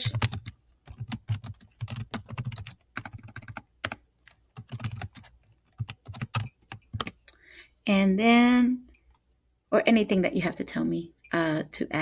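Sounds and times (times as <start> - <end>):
keyboard typing: 0.0 - 7.3.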